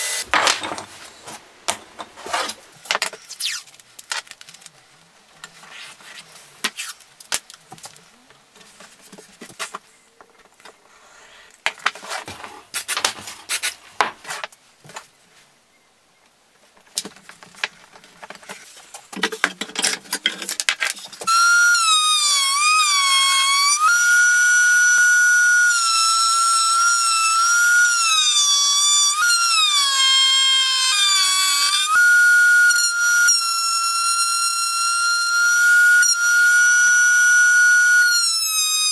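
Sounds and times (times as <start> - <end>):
masking tape rustling and tearing: 3.2 - 4.8, 5.6 - 8.0, 12.1 - 14.5.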